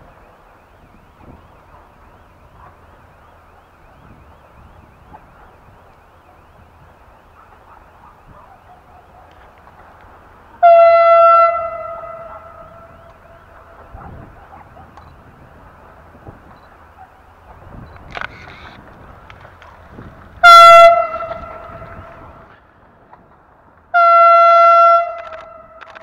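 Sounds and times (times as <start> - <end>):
faint outdoor background: 0.0 - 26.0
train horn blast: 10.6 - 13.9, 20.4 - 22.5, 23.9 - 25.8.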